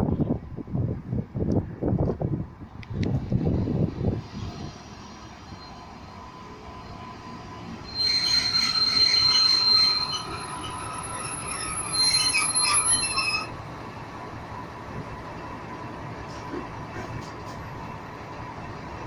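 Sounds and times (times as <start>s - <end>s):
train brakes squealing: 4.3s - 13.6s.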